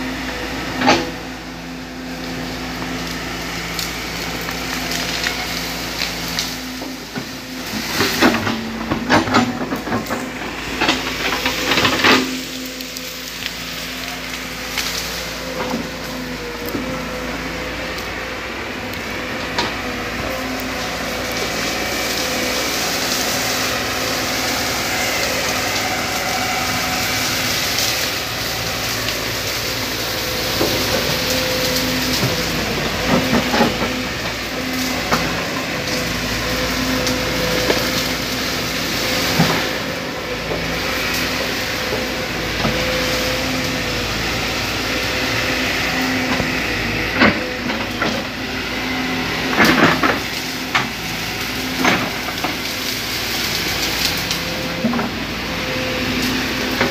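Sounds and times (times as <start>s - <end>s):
excavator diesel engine running: 0.0s - 56.9s
branches snapping: 2.0s - 18.1s.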